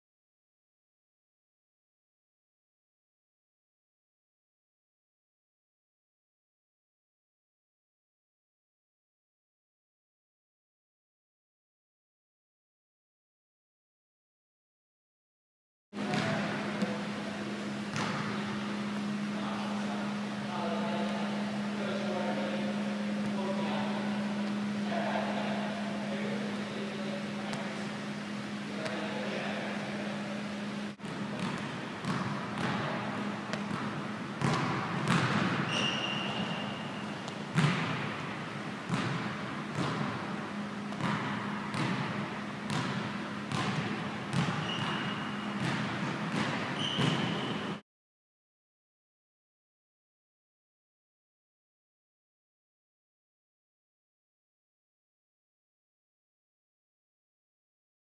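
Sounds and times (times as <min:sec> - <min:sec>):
steady low hum: 0:16.0 - 0:47.8
sneaker squeaks: 0:31.0 - 0:38.0, 0:42.7 - 0:47.8.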